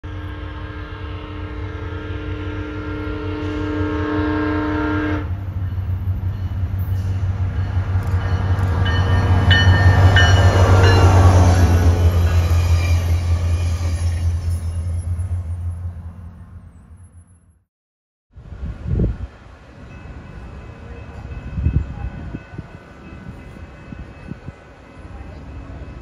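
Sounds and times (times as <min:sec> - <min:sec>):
train horn: 0:00.0 - 0:05.5
train rumble: 0:00.1 - 0:17.3, 0:18.4 - 0:26.0.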